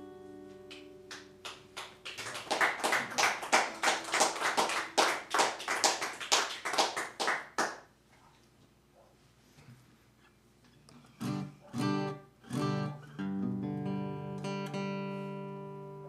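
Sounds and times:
audience clapping: 0:00.7 - 0:07.9
acoustic guitar chord: 0:11.2 - 0:16.0.

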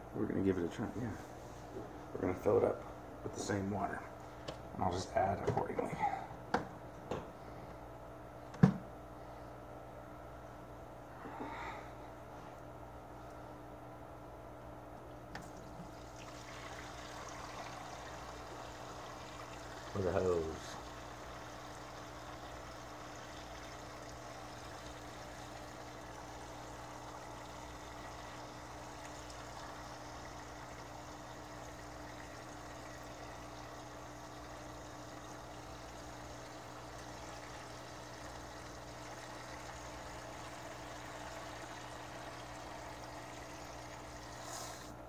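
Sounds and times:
water running from a hose: 0:15.5 - 0:44.9.

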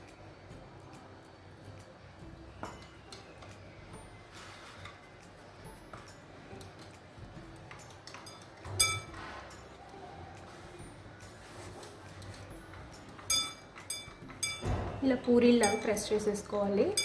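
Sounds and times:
sharp ringing clink: 0:08.2 - 0:09.6, 0:13.3 - 0:14.9.

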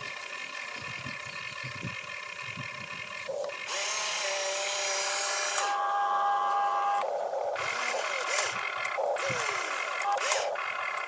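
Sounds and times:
electric motors whining: 0:00.0 - 0:11.0.

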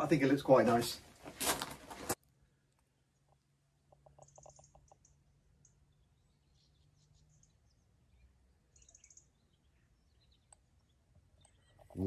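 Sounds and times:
faint high bird chirps: 0:04.2 - 0:12.0.

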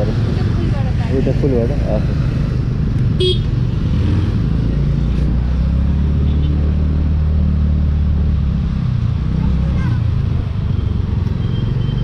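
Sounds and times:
road and wind rumble: 0:00.0 - 0:12.0.

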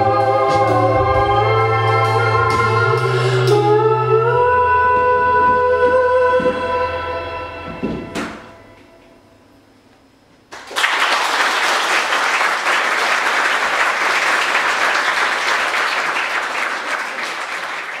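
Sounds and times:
audience applause: 0:10.5 - 0:18.0.

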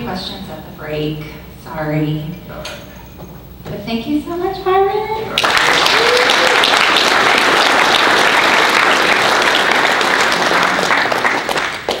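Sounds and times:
audience applauding: 0:05.3 - 0:12.0.

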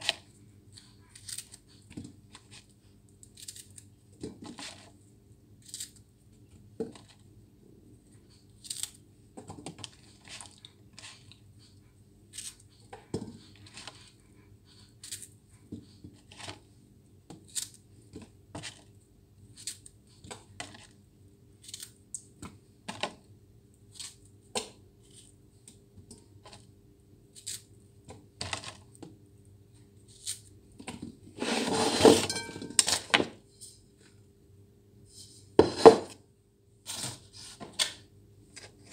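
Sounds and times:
dish clattering: 0:32.1 - 0:32.8.

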